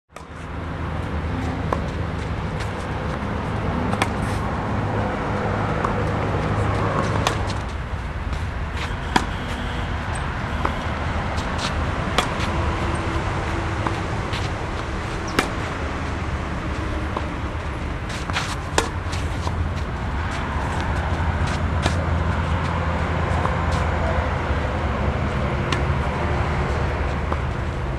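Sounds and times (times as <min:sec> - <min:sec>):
tennis ball struck by rackets: 0:01.6 - 0:04.4, 0:05.7 - 0:09.7, 0:10.6 - 0:22.3, 0:25.7 - 0:25.9.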